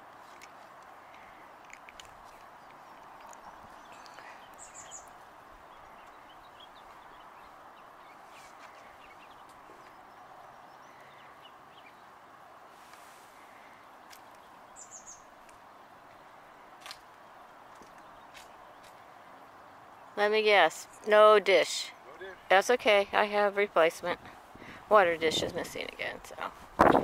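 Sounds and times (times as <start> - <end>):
faint outdoor hum: 0.0 - 27.0
small bird chirping: 2.2 - 12.1, 14.1 - 15.3.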